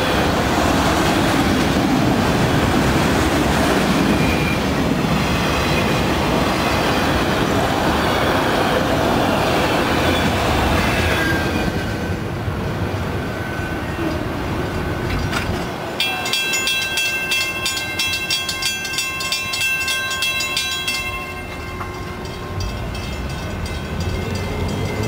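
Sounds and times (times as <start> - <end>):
freight train rolling: 0.0 - 25.0
crossing warning bell ringing: 15.6 - 25.0.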